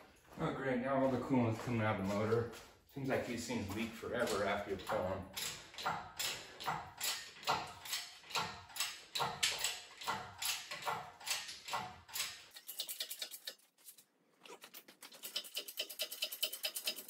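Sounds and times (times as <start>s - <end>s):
hydraulic hoist hand pumping: 4.0s - 13.6s, 14.6s - 17.0s.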